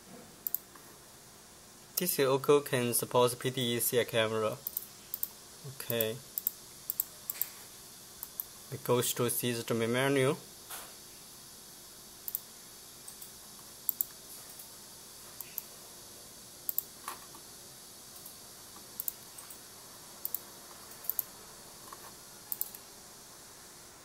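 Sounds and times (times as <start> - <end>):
faint background hiss: 0.0 - 24.0
computer mouse button clicking: 21.0 - 21.3.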